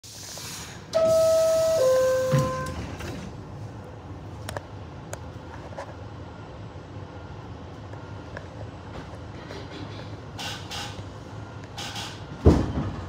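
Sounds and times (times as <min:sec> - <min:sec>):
subway car low rumble: 0:00.0 - 0:13.0
two-tone door chime: 0:01.0 - 0:03.0
doors shutting thud: 0:01.0 - 0:03.4.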